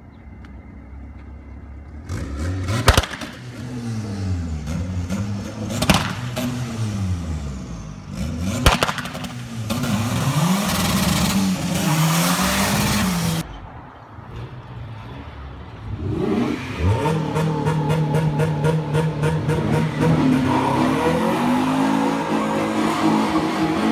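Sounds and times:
car engine revving: 0:01.8 - 0:13.4, 0:15.8 - 0:23.9
loud exhaust bangs: 0:01.9 - 0:15.0.

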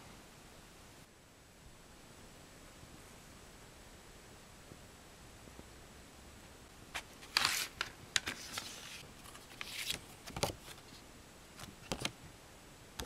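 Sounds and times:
paper card rustling: 0:07.0 - 0:11.0, 0:11.6 - 0:12.2.

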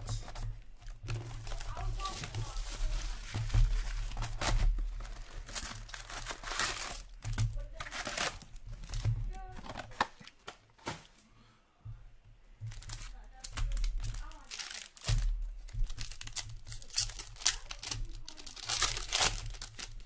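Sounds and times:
plastic and foil packs crinkling: 0:00.0 - 0:11.2, 0:12.6 - 0:20.0
box being torn open: 0:04.0 - 0:07.2, 0:07.8 - 0:10.2, 0:16.0 - 0:20.0.

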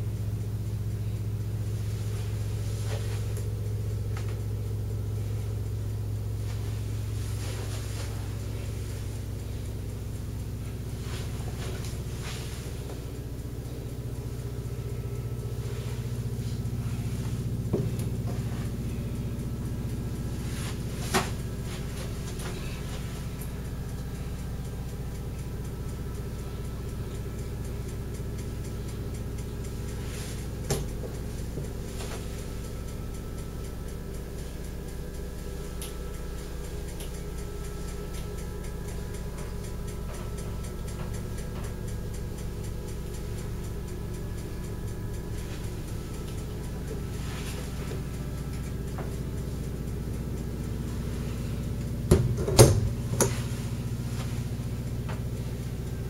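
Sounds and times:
low machinery hum: 0:00.0 - 0:56.0.

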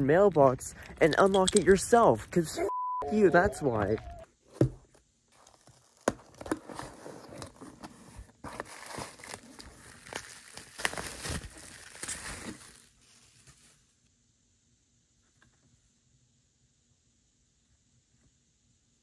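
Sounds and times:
plastic crinkling: 0:08.4 - 0:13.8.

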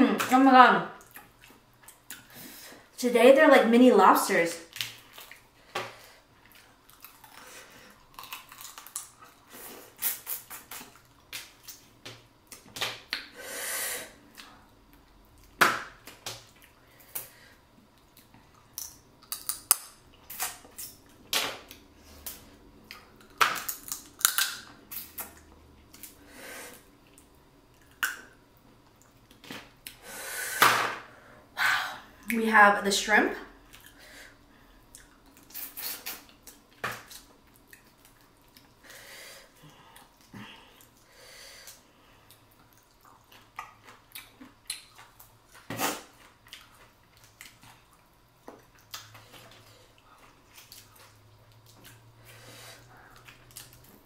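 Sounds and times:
crawfish shells cracking: 0:08.1 - 0:09.4, 0:18.7 - 0:20.5, 0:23.2 - 0:25.2.

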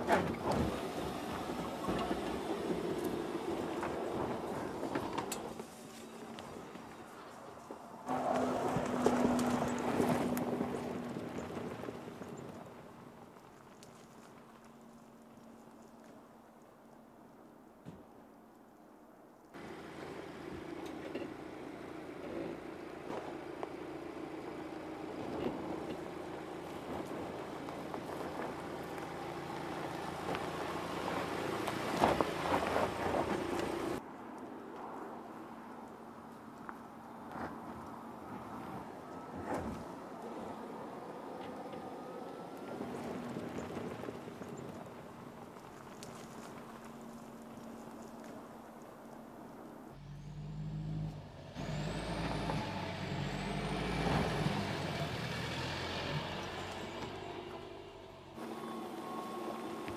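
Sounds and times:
vehicle drivetrain hum: 0:00.0 - 0:16.2, 0:19.6 - 0:59.9
tyres crunching on dirt and stones: 0:00.0 - 0:16.3, 0:19.6 - 0:34.0, 0:42.6 - 0:49.6.

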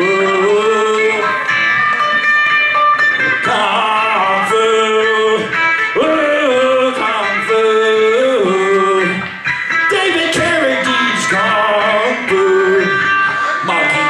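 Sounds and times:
plucked string accompaniment: 0:00.0 - 0:14.0
person singing long sliding notes: 0:09.9 - 0:14.0.

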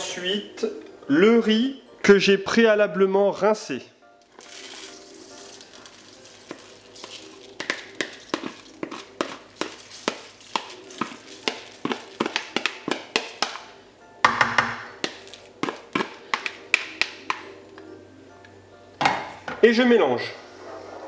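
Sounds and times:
faint background music: 0:00.0 - 0:21.0
spoon knocking plastic bowl: 0:07.6 - 0:17.4.

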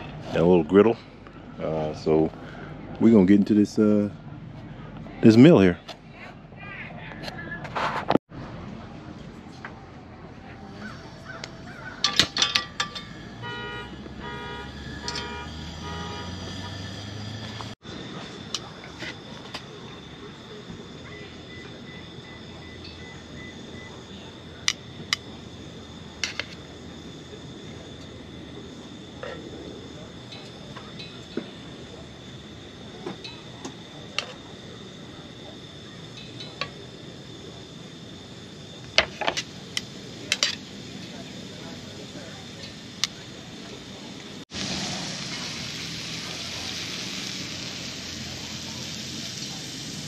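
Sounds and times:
metallic clinks: 0:12.0 - 0:13.3
gas burner rushing: 0:12.0 - 0:23.6, 0:36.4 - 0:50.0
meat sizzling on a griddle: 0:44.5 - 0:50.0.

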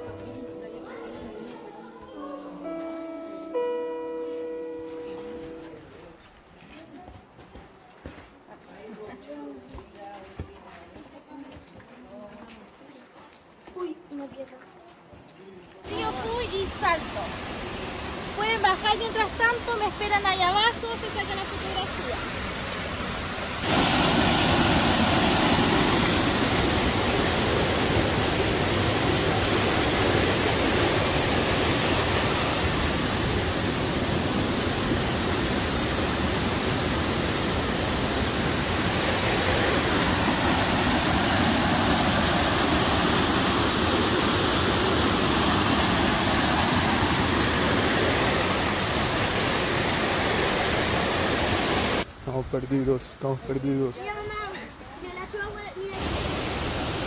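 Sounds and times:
fast-flowing river water rushing: 0:15.9 - 0:52.1, 0:55.9 - 0:57.0.

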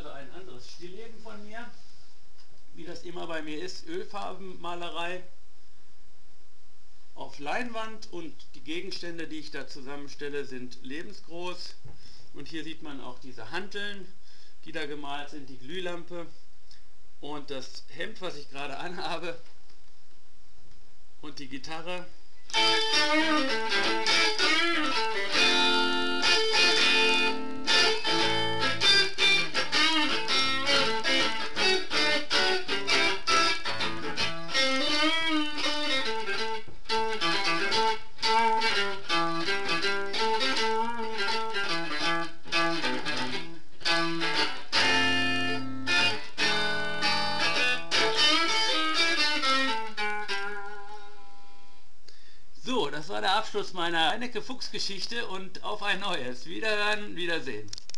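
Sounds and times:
electric guitar solo: 0:22.5 - 0:51.8.

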